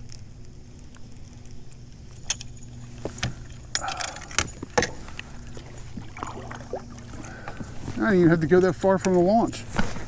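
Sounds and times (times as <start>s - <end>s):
steady low hum: 0.0s - 10.0s
fishing gear knocks and clinks: 2.2s - 6.1s.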